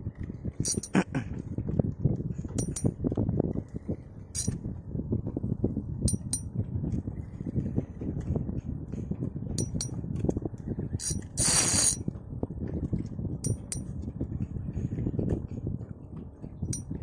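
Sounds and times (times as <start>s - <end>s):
water and wind rushing: 0.0s - 17.0s
metallic clinks: 0.6s - 1.1s, 2.6s - 2.9s, 4.4s - 4.6s, 6.1s - 6.5s, 9.6s - 10.0s, 11.0s - 12.0s, 13.4s - 13.9s
loud hissing buzz: 11.4s - 12.0s.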